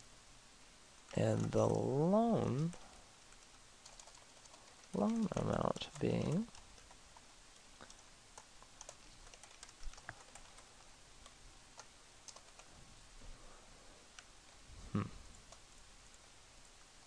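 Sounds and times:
keyboard typing: 1.1s - 12.7s.

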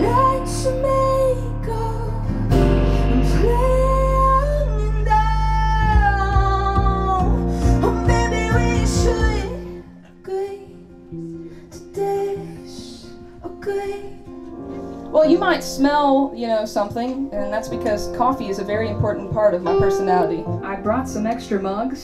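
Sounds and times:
bass: 0.0s - 10.0s, 17.5s - 22.0s
person singing: 0.0s - 10.7s
acoustic guitar: 0.0s - 22.0s
drums: 5.8s - 9.7s.

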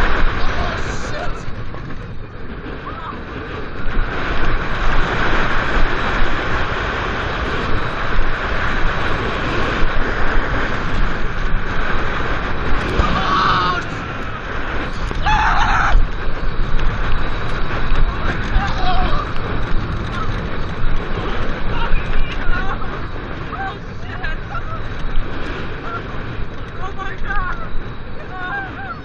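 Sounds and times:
riders screaming: 0.0s - 5.6s, 11.8s - 29.0s
roller coaster rumbling on wooden track: 0.0s - 29.0s
wind on microphone: 0.0s - 29.0s.

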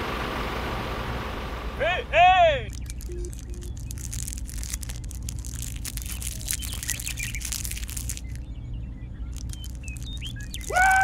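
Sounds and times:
faint bird chirps: 2.5s - 11.0s.

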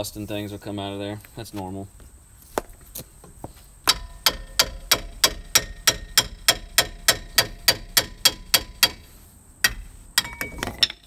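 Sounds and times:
sledgehammer striking metal: 3.9s - 11.0s.

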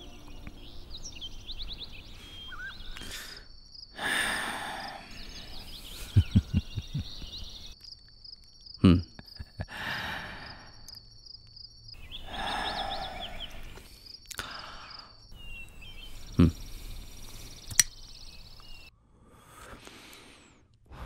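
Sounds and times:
bird chirps: 0.0s - 4.0s, 4.7s - 9.6s, 10.7s - 18.9s
high insect drone: 0.0s - 18.9s
breathy rush: 12.2s - 15.2s
cigarette lighter click: 17.7s - 18.0s.

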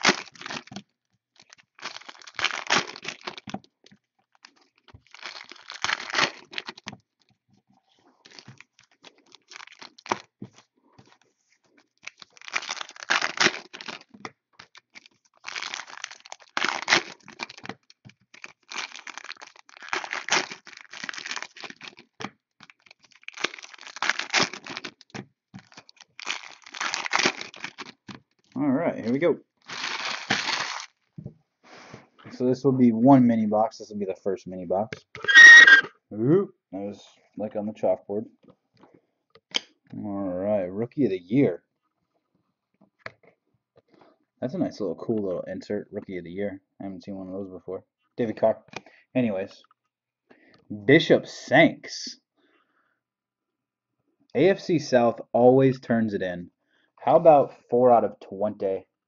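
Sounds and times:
plastic wrapping crinkling and tearing: 0.0s - 7.3s, 8.1s - 31.1s.

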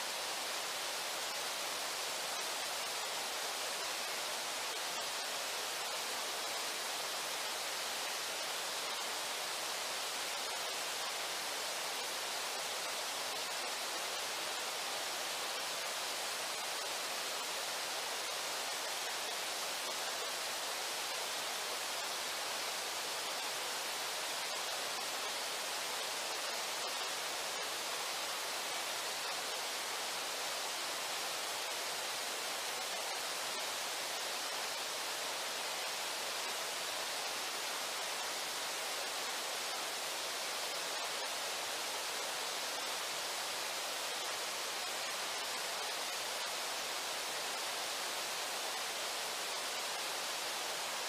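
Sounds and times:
river water rushing: 0.0s - 51.0s.

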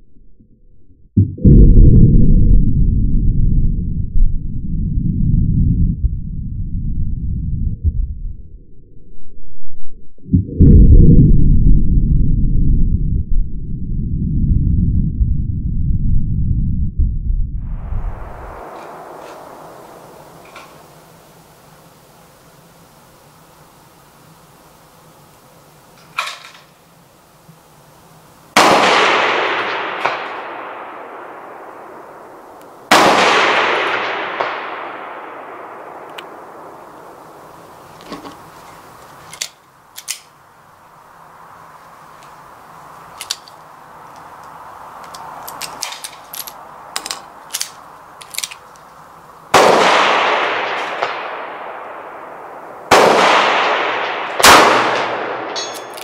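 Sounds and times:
bullets clanging on steel target: 55.5s - 56.0s.

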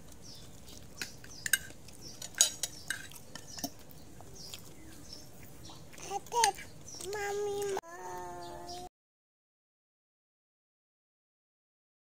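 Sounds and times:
spoon clinking against dishes: 1.0s - 3.8s.

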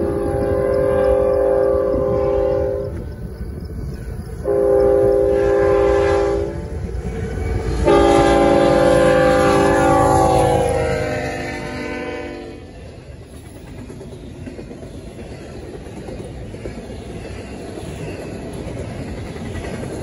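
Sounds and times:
locomotive air horn blasts: 0.0s - 3.1s, 4.4s - 12.8s
train rumble: 0.0s - 20.0s.

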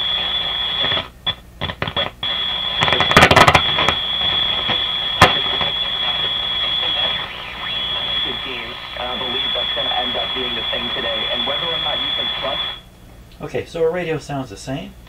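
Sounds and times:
radio playing through speaker: 0.0s - 12.8s
crackling static: 0.0s - 12.9s
high-pitched whistle: 3.6s - 12.8s.

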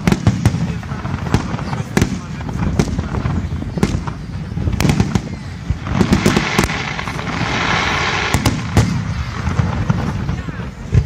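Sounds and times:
firework crackling: 0.0s - 11.0s
firework shells bursting: 3.8s - 10.1s.

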